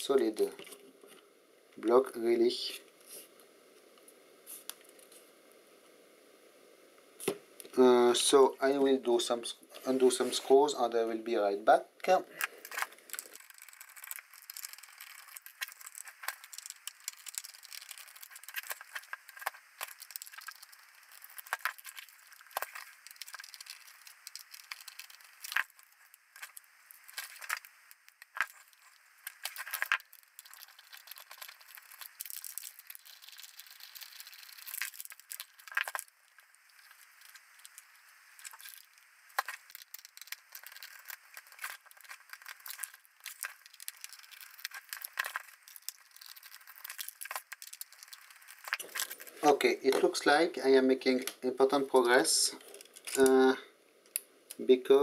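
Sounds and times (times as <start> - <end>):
small clicks scrapes and rattles: 12.4 - 50.1, 52.6 - 53.4.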